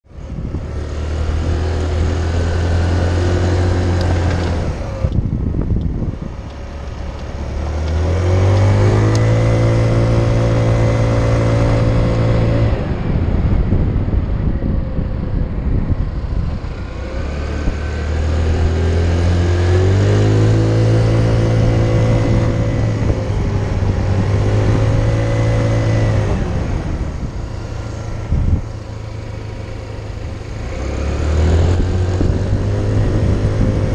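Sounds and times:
motor scooter engine revving: 0.2 - 33.9.

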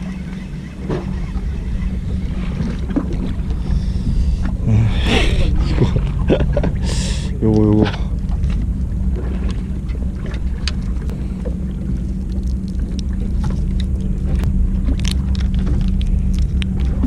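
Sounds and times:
boat engine humming: 0.0 - 17.0
fishing rig clicks and rattles: 12.1 - 17.0.

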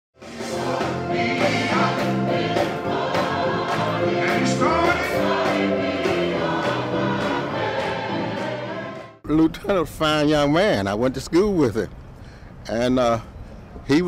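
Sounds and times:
gospel choir singing: 0.2 - 9.2.

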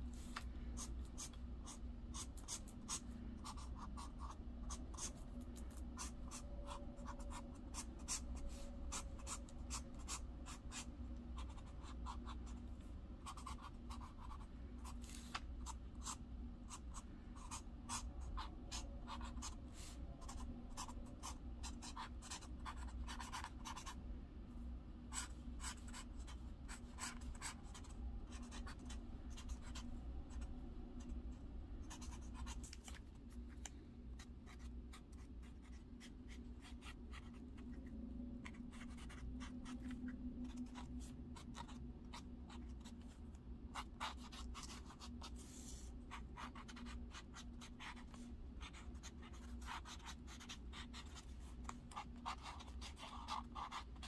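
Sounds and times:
steady low hum: 0.0 - 54.0
felt-tip pen scratching paper: 0.8 - 12.4, 13.2 - 24.0, 38.4 - 43.0, 43.7 - 54.0.

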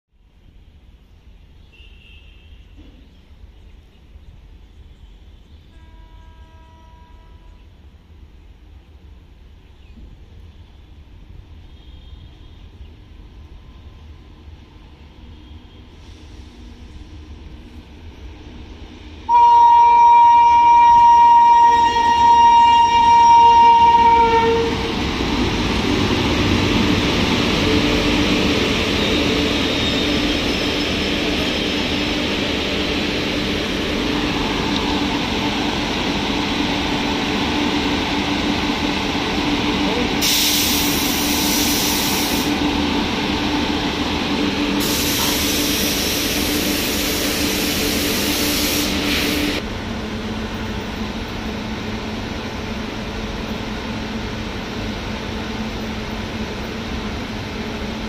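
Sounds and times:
locomotive hum: 15.4 - 58.0
loud hissing: 38.8 - 43.0, 43.9 - 49.6.

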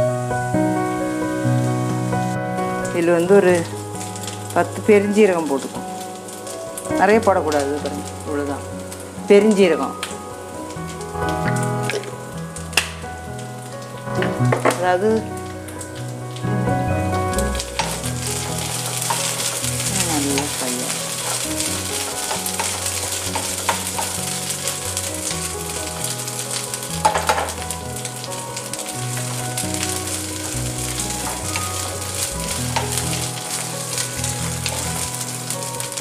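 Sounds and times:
vegetables sizzling in oil: 0.8 - 36.0
spatula stirring and scraping: 17.8 - 25.6.

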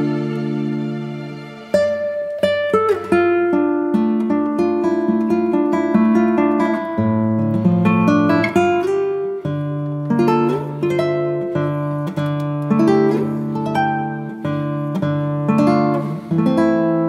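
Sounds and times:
acoustic guitar music: 0.0 - 17.0.

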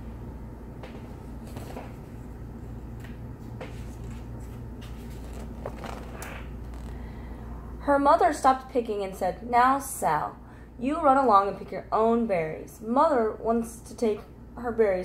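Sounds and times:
low room hum: 0.0 - 15.0
paper pages rustling: 3.7 - 6.9.

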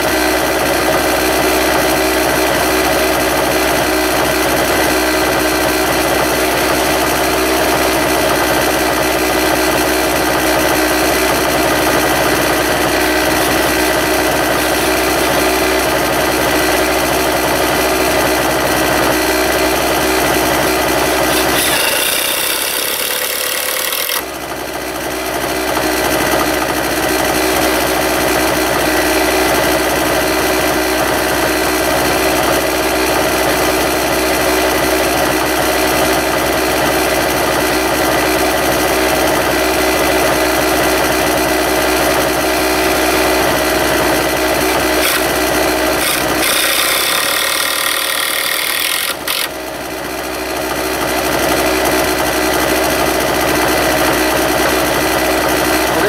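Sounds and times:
steady mechanical hum: 0.0 - 37.7, 38.6 - 56.0
cordless drill driving screws: 21.2 - 24.3, 45.0 - 45.3, 45.9 - 49.5.

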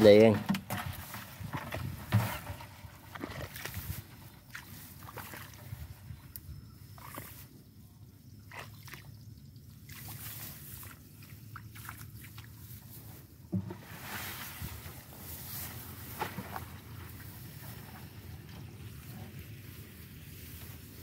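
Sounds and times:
squelches of mud and water: 0.0 - 21.0
rustle: 9.9 - 21.0
thump: 13.5 - 13.8.

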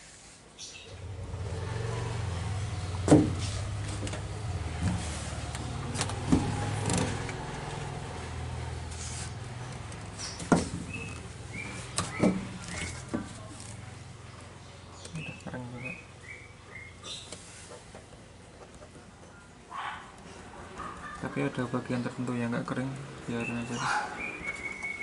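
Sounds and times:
vehicle engine humming: 0.9 - 19.1
sharp knocks and bumps: 2.9 - 7.4, 9.8 - 13.5.

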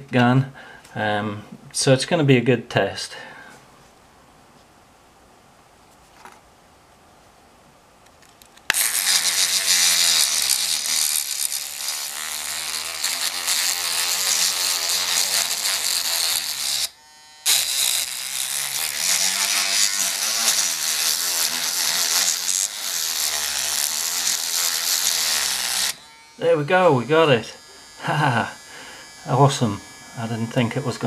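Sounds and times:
electric lock pick buzzing: 8.7 - 31.0.

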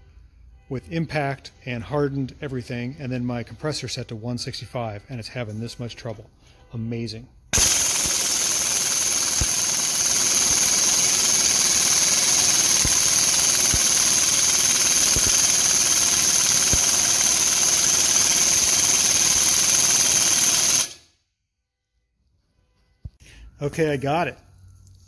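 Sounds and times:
pneumatic impact gun hammering: 7.6 - 21.1.

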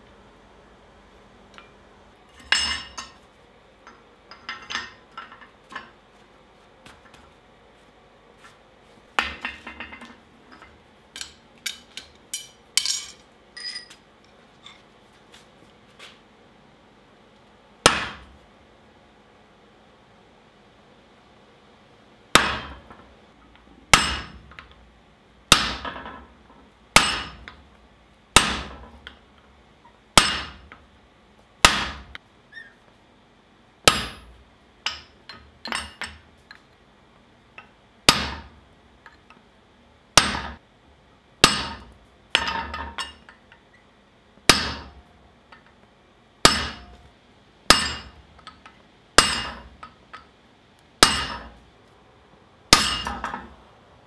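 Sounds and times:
hammer striking steel punch: 17.8 - 18.3, 22.3 - 22.9, 23.9 - 24.6, 25.5 - 26.0, 27.0 - 27.6, 28.4 - 28.8, 30.2 - 30.8, 31.6 - 32.2, 33.9 - 34.3, 38.1 - 38.5, 40.2 - 40.6, 41.4 - 43.2, 44.5 - 45.0, 46.4 - 47.0, 47.7 - 48.6, 49.2 - 50.0, 51.0 - 51.6, 52.7 - 53.5.

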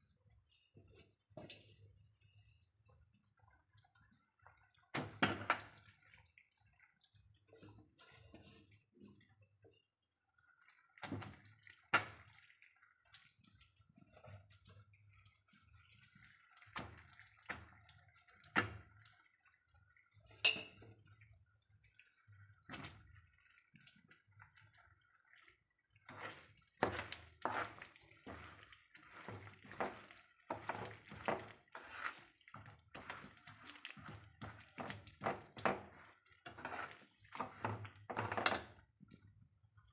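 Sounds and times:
oil crackling and popping: 10.2 - 20.3, 20.9 - 39.9.

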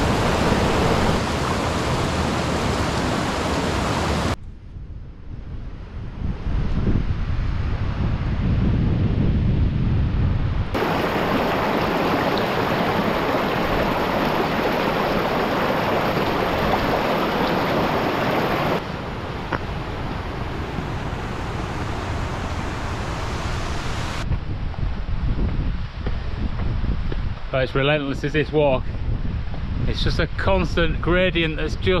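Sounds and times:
wind buffeting microphone: 0.0 - 2.0, 4.4 - 32.0
stream rushing over rocks: 0.0 - 4.4, 10.8 - 18.8.

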